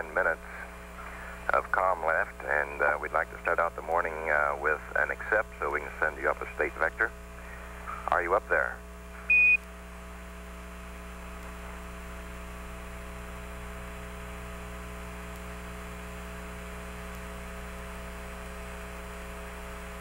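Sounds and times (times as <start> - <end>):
radio static hiss: 0.0 - 9.6
steady radio hum of fixed tones: 0.0 - 20.0.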